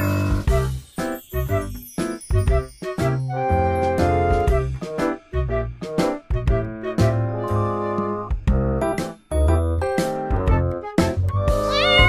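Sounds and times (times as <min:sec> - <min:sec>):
background music with bass line: 0:00.0 - 0:12.0.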